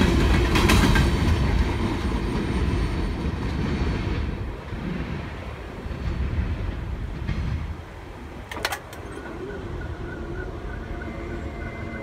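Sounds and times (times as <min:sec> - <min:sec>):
train cars rumbling: 0:00.0 - 0:12.0
crossing warning bell dinging: 0:08.4 - 0:12.0.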